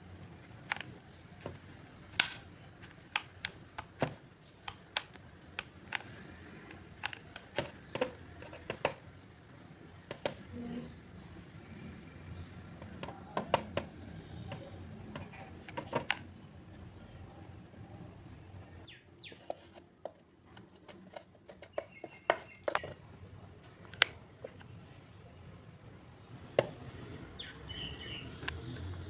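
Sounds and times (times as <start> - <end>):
wooden block scraping plastic: 5.9 - 9.0, 19.3 - 23.0.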